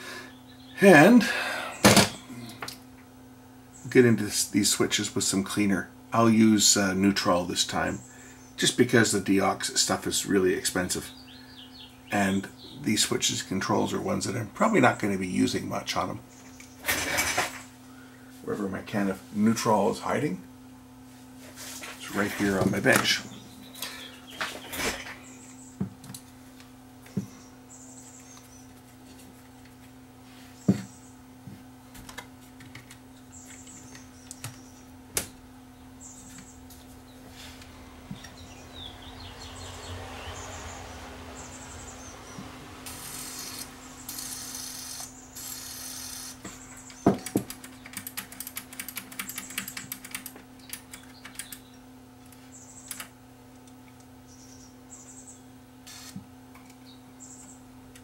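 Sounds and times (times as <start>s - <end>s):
steady low hum: 0.0s - 58.0s
handling knocks and taps: 46.4s - 47.9s.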